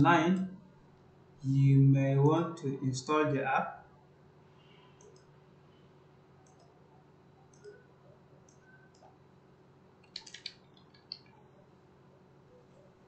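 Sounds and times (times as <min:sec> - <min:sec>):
low steady hum: 0:00.0 - 0:13.0
faint clicks: 0:05.0 - 0:05.3, 0:06.4 - 0:06.7, 0:07.5 - 0:07.8
keyboard typing: 0:10.0 - 0:11.3.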